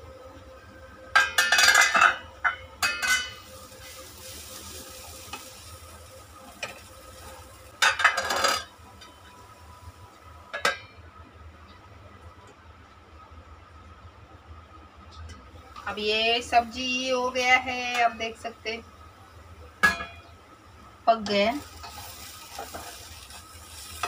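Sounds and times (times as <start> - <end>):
vegetables sizzling: 2.8 - 10.1, 21.1 - 24.0
wooden spatula scraping a pan: 21.8 - 24.0.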